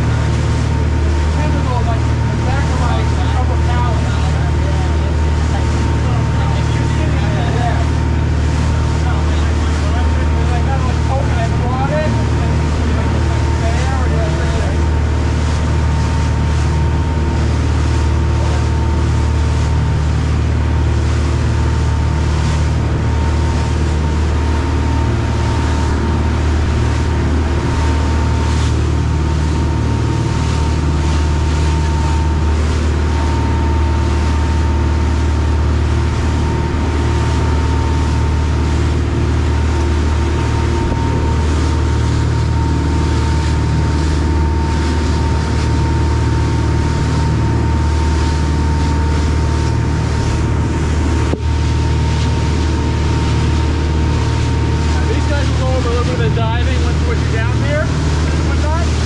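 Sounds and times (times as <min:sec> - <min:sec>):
boat engine drone: 0:00.0 - 0:59.0
churning wake rushing: 0:00.0 - 0:59.0.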